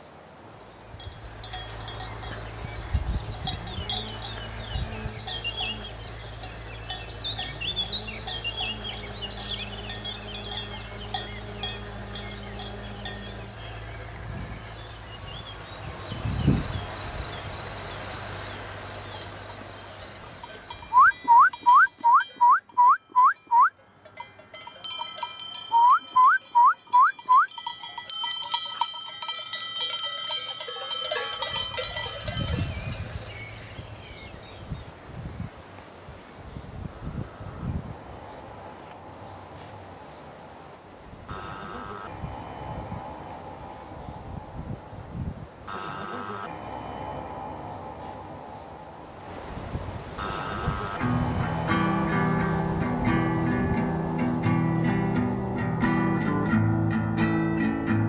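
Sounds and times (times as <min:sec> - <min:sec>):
bells clinking and ringing: 0:01.0 - 0:14.0, 0:20.0 - 0:33.6.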